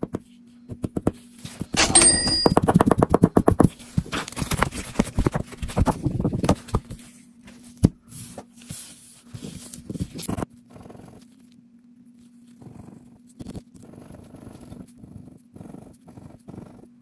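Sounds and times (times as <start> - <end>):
paper rustling: 3.7 - 10.4.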